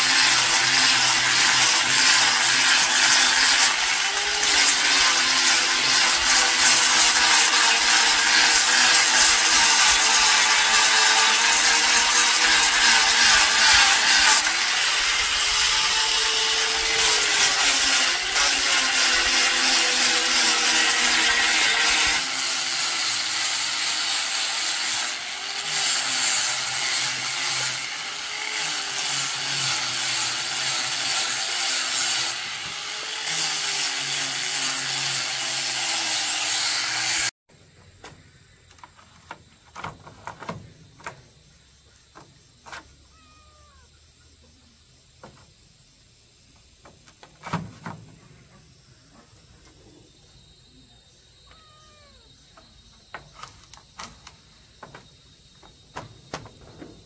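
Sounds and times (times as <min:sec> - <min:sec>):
angle grinder grinding wood: 0:00.0 - 0:37.3.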